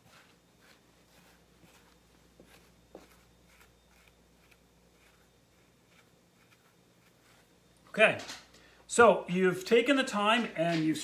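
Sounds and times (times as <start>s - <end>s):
comb brushing through fur: 0.0s - 7.6s.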